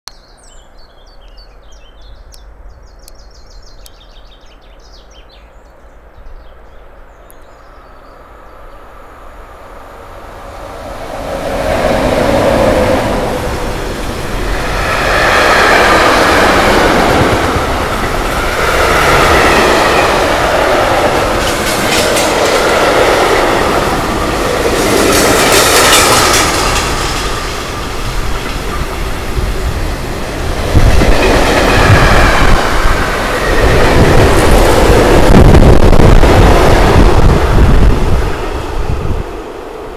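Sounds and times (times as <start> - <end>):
train rumble: 6.1 - 39.9
train wheels clattering: 14.6 - 29.1.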